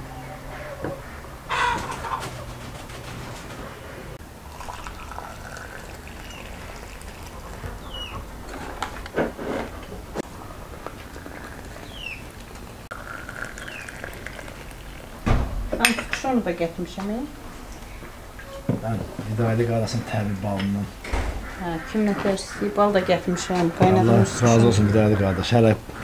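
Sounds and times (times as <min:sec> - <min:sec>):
birds calling: 0:00.0 - 0:04.2, 0:04.9 - 0:09.2, 0:09.9 - 0:15.4, 0:17.6 - 0:26.0
tap pouring thin stream: 0:04.4 - 0:07.9, 0:11.4 - 0:15.2.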